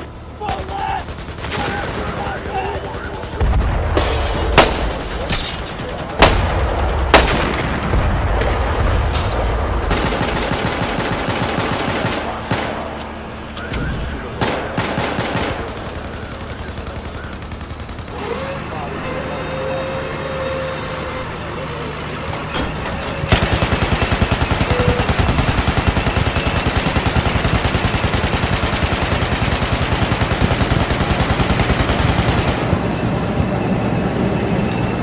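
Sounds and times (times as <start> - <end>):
rapid automatic gunfire: 0.4 - 5.0, 9.9 - 13.0, 14.4 - 18.4, 23.3 - 32.8
single gunshots: 6.2 - 8.4.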